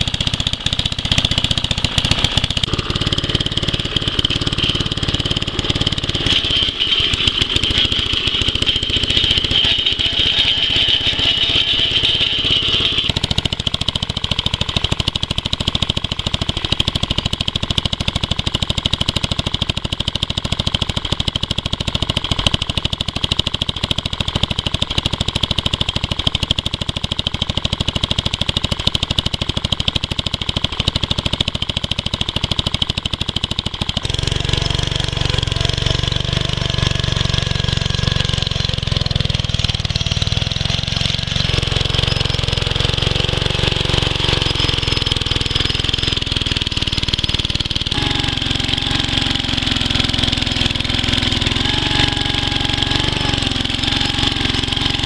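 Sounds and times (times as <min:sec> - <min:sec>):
small engine running steadily: 0:00.0 - 0:55.0.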